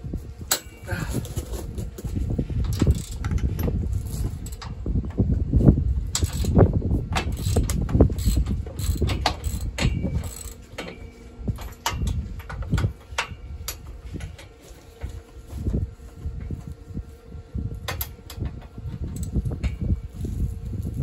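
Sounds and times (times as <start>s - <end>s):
ratchet wrench clicking: 2.7s - 3.6s, 6.1s - 6.6s, 7.2s - 10.6s
metal tapping and clanking: 7.2s - 14.6s.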